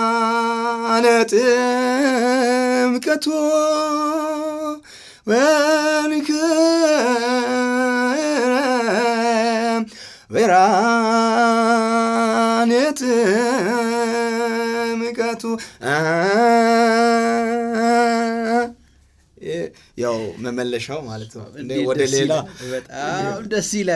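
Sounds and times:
man singing chant unaccompanied: 0.0s - 18.8s, 21.6s - 23.9s.

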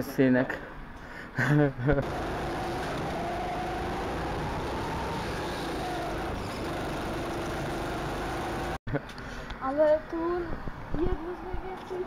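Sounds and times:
go-kart engine running: 2.0s - 8.8s
steady rushing noise: 2.0s - 8.8s.

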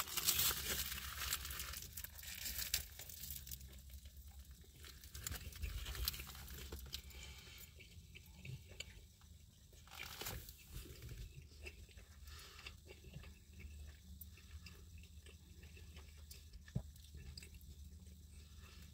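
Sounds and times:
paper wrapper crinkling: 0.0s - 4.0s, 4.8s - 7.1s, 9.9s - 11.1s
small clicks and crackles: 0.0s - 7.2s.

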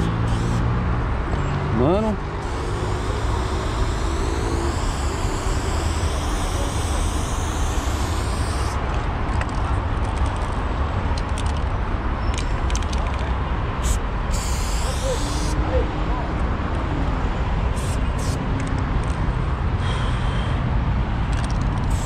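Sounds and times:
spray can hissing: 0.0s - 0.7s, 2.4s - 8.9s, 13.8s - 15.6s, 17.7s - 18.7s, 21.3s - 22.0s.

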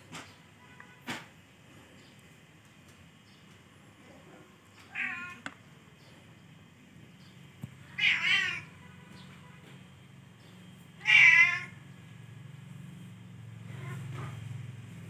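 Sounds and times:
kitten meowing: 4.9s - 5.4s, 7.9s - 8.7s, 11.0s - 11.8s.

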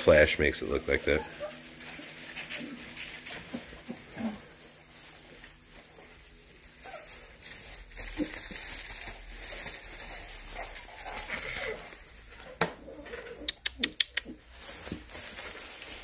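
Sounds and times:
scrabbling in paper bedding: 0.0s - 12.3s, 14.4s - 16.0s
puppies whimpering: 1.1s - 4.5s.

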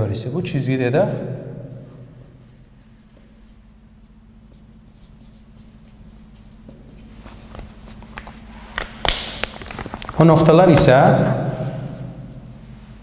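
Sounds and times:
marker scratching on whiteboard: 1.7s - 7.2s.

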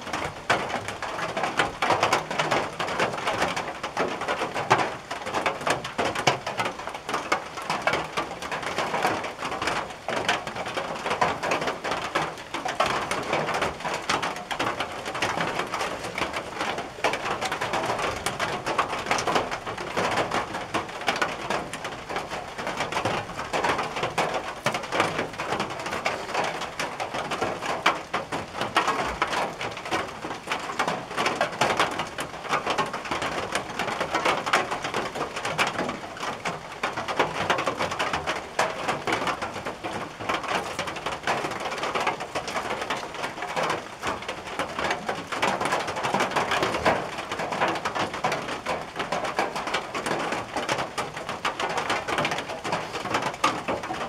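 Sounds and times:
rain on a tin roof: 0.0s - 54.0s.

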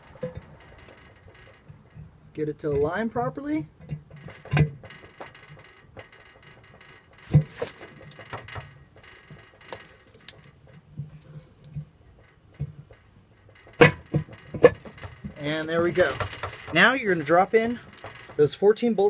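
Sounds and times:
sharp metal clunks: 3.8s - 18.6s.

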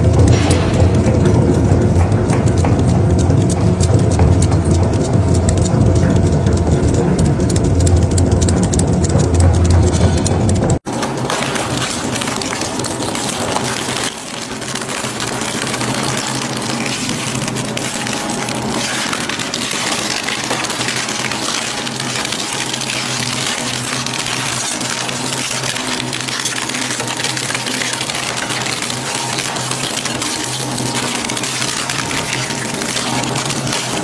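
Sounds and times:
low machine hum: 0.0s - 34.0s
shredder crackling and splintering wood: 10.8s - 34.0s.

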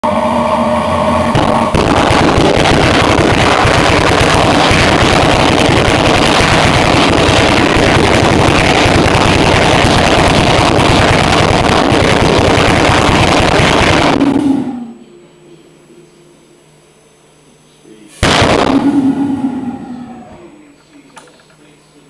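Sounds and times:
pulse jet buzzing roar: 0.0s - 15.7s, 18.2s - 20.7s.

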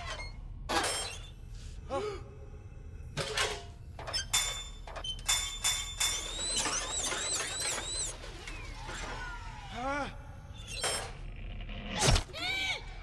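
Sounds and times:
mechanical clicks and clanks: 3.2s - 9.3s.

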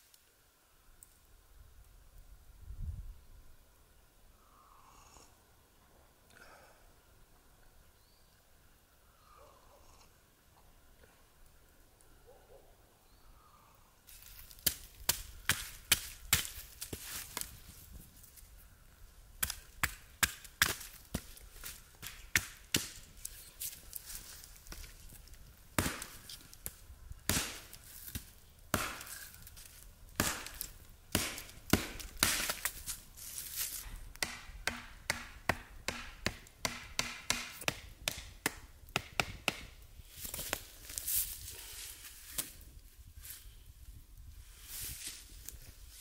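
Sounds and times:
hatchet chopping wood: 14.6s - 17.5s, 19.4s - 23.0s, 25.8s - 29.4s, 30.2s - 32.8s, 34.1s - 39.8s.

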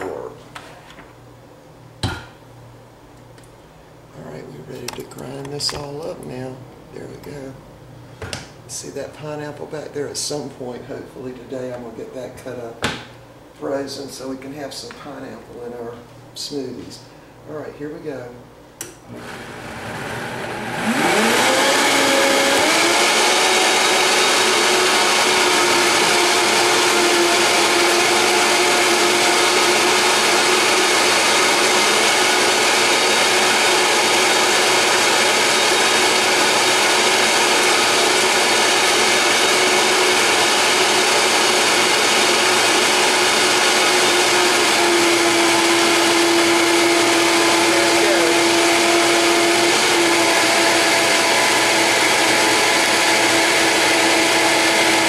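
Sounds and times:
blender motor running: 19.1s - 55.0s.

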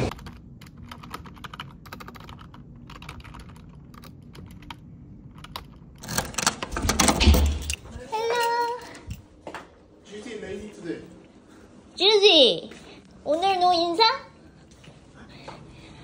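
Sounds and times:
fast typing on keyboard: 0.1s - 7.0s
key turning in door lock: 3.2s - 9.3s.

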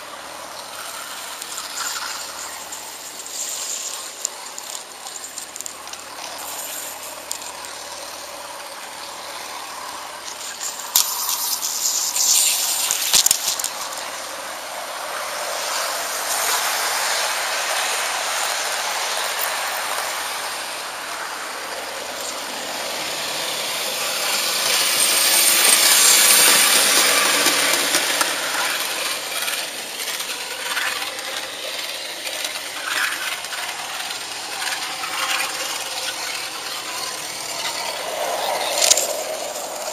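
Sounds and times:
model train wheels rattling on rails: 0.0s - 39.9s
sharp clicks: 38.4s - 39.9s.

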